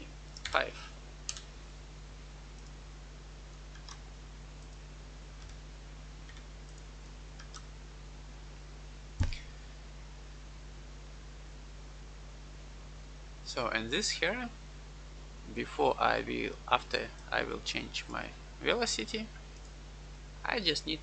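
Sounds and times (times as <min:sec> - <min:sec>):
low electrical hum: 0:00.0 - 0:21.0
computer keyboard keystrokes: 0:00.4 - 0:00.6, 0:01.3 - 0:01.5, 0:03.7 - 0:04.0, 0:05.4 - 0:05.6, 0:06.3 - 0:07.7.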